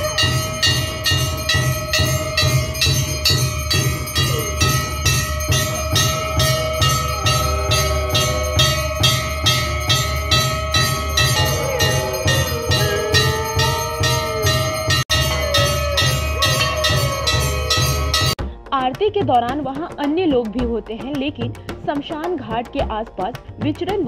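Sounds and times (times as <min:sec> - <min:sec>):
bells ringing: 0:00.0 - 0:18.4
dogs howling: 0:00.0 - 0:18.4
deep drum beat: 0:00.0 - 0:24.0.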